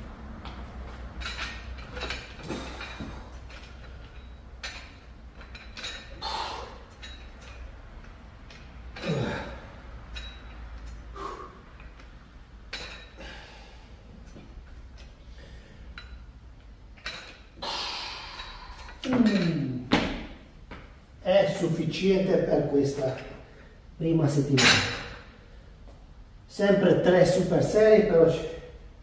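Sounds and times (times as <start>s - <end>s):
dumbbells and bench clinking: 0.0s - 21.6s, 24.5s - 25.5s
steady low hum: 0.0s - 29.0s.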